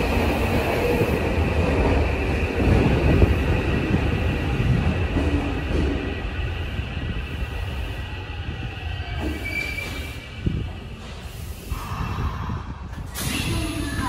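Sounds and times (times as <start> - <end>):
subway train rumbling: 0.0 - 14.0
high wheel squeal: 9.0 - 10.4.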